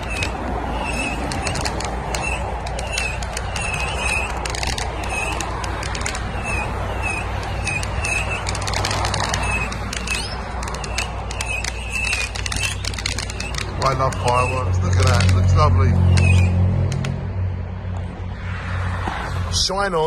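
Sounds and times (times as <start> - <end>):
fireworks crackling and popping: 0.0 - 15.5.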